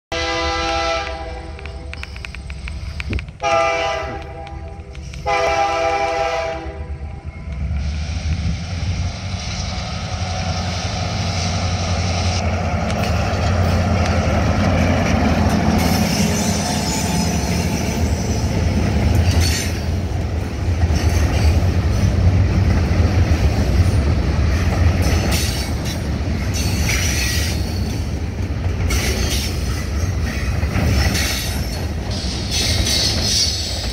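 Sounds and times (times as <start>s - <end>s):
locomotive air horn blasts: 0.1s - 1.9s, 3.4s - 7.2s
locomotive engines running: 9.9s - 33.9s.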